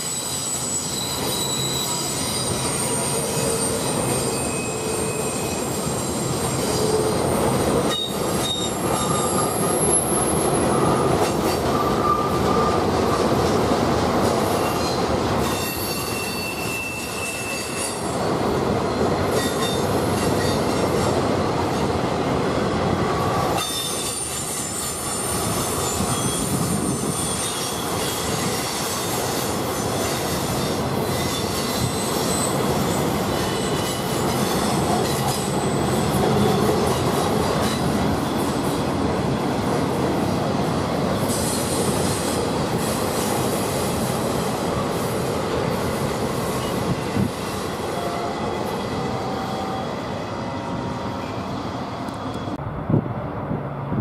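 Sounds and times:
high-pitched wheel squeals: 0.0 - 12.9, 14.6 - 18.2, 23.6 - 28.9
train wheels rumbling on rails: 0.0 - 54.0.

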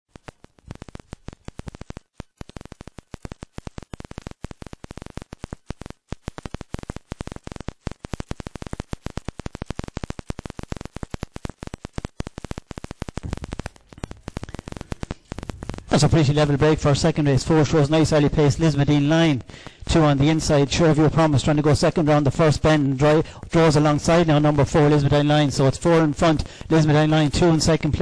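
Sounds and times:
dense irregular crackling: 0.1 - 28.0.

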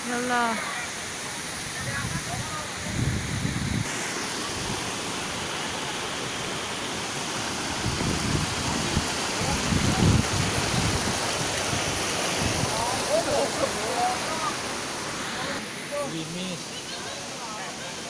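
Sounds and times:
rushing water of waterfall: 0.0 - 18.0
wind rumble on microphone: 1.8 - 3.9, 7.8 - 12.8.

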